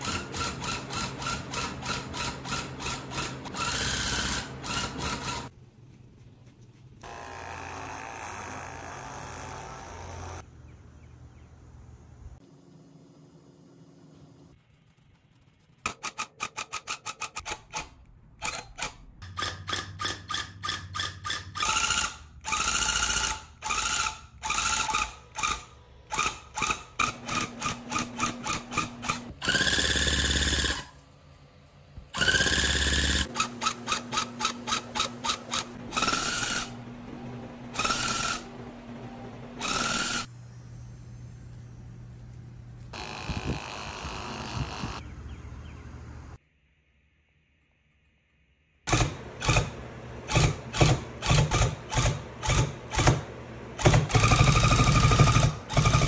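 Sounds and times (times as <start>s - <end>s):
tufting gun punching yarn: 48.9s - 56.0s.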